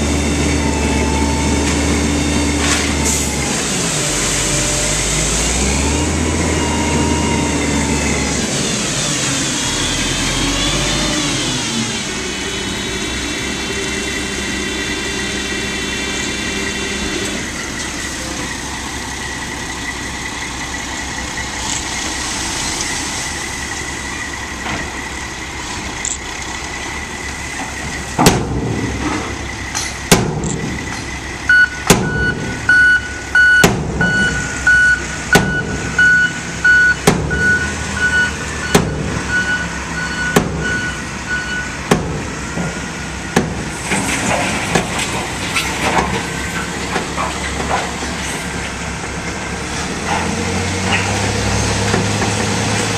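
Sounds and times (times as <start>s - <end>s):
diesel truck engine running: 0.0s - 52.9s
backup alarm beeping: 31.5s - 41.7s.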